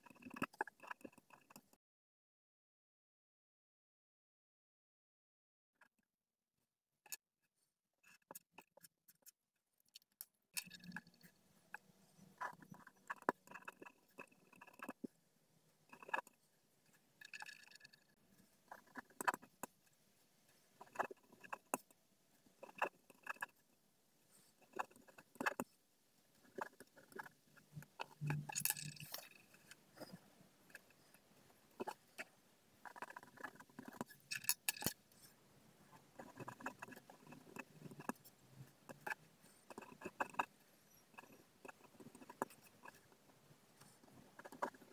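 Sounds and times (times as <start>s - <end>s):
pen scratching on paper: 11.0s - 15.1s, 18.7s - 19.7s, 20.8s - 21.8s, 24.3s - 25.7s, 26.4s - 28.3s, 28.9s - 34.2s, 35.1s - 43.2s, 43.8s - 44.9s.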